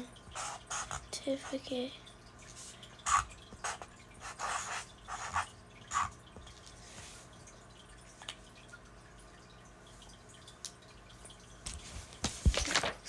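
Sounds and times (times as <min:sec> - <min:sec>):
pen scratching on paper: 0:00.4 - 0:01.0, 0:03.0 - 0:06.1.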